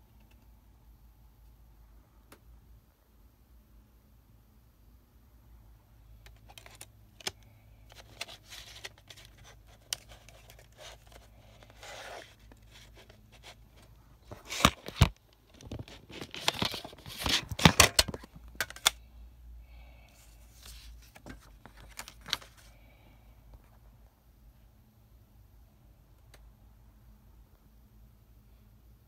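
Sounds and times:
paper booklet rustling: 6.4s - 19.0s, 20.3s - 22.8s
plastic case clicking: 17.5s - 19.0s.

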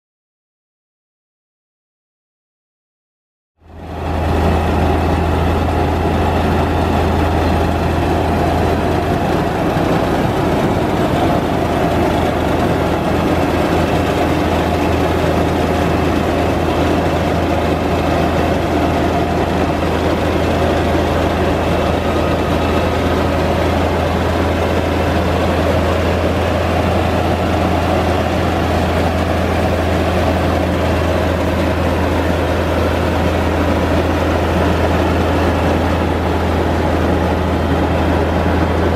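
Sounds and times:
rice mill machine drone: 3.6s - 38.9s.

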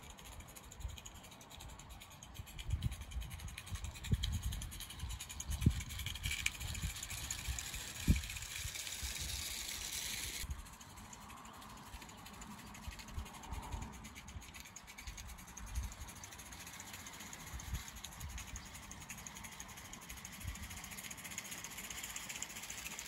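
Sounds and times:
wind buffeting microphone: 2.4s - 9.8s.

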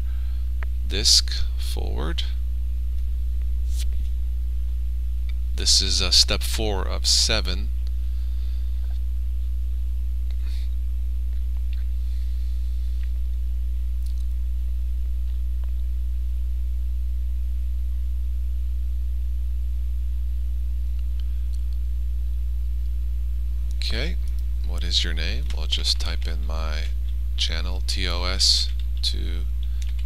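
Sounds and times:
electrical mains hum: 0.0s - 30.0s
faint clicks: 28.6s - 30.0s.

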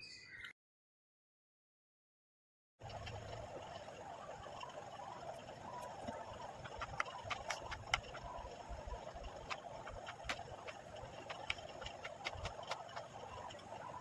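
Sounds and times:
steady background hum: 2.8s - 14.0s.

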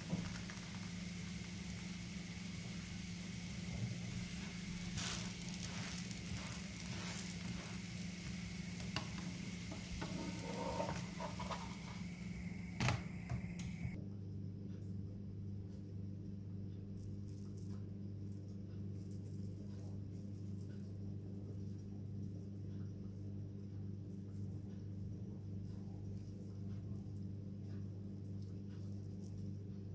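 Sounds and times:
crepe sizzling in a pan: 0.0s - 14.0s
steady low hum: 0.0s - 29.9s
soft taps and scrapes: 5.0s - 12.1s.

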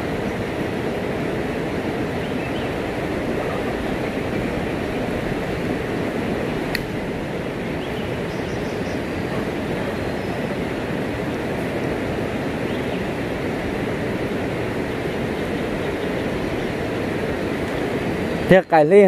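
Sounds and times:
river water rushing: 0.0s - 19.0s
sharp click: 6.7s - 6.9s.

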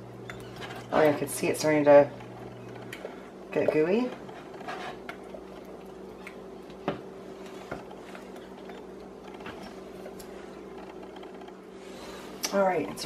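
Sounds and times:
steady low hum: 0.0s - 13.0s
wooden spoon scraping saucepan: 0.4s - 5.6s.

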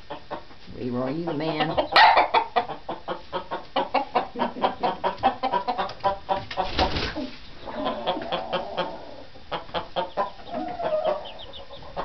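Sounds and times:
chickens clucking: 0.0s - 12.0s
wings fluttering: 6.4s - 7.4s.

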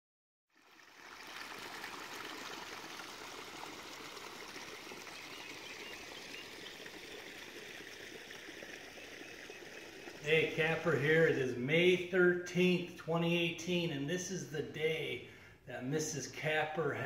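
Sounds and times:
water running and trickling: 0.5s - 12.1s.

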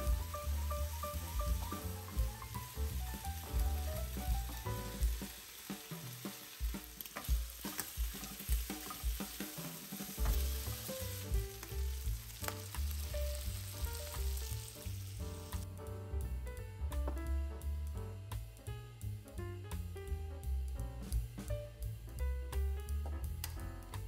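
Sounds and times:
bacon and mushrooms sizzling: 0.0s - 15.8s.

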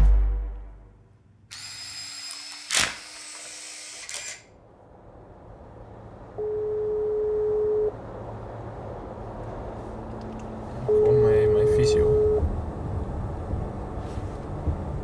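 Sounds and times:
telephone ringback beep: 6.4s - 7.9s, 10.9s - 12.4s.

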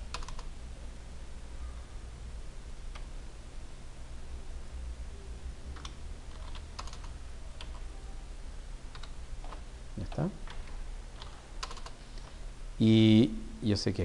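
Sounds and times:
steady low hum: 0.0s - 14.0s
keyboard keystrokes: 0.1s - 0.5s, 5.8s - 7.8s, 8.9s - 12.3s.

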